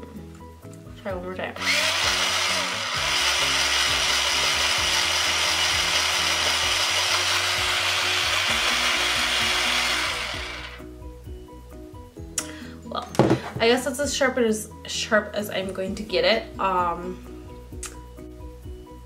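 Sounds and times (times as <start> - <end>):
electric pencil sharpener grinding: 1.6 - 10.8.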